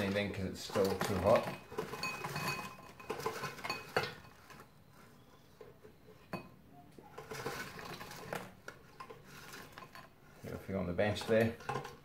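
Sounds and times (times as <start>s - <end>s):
chips clattering into ceramic bowl: 0.0s - 4.6s.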